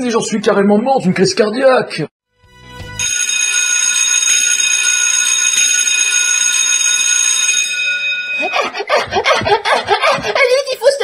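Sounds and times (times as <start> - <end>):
school bell ringing: 3.0 - 8.9.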